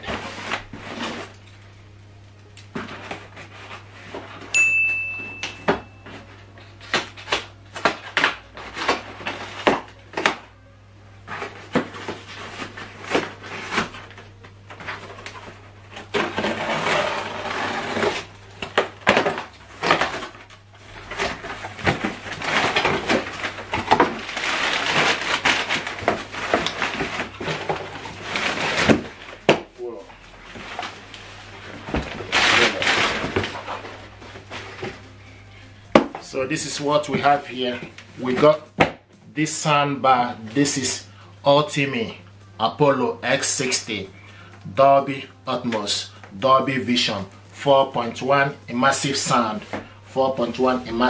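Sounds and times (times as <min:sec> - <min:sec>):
paper packing rustling: 0:05.7 - 0:10.4, 0:11.2 - 0:35.2
packing tape being cut: 0:11.3 - 0:29.6, 0:32.0 - 0:35.1.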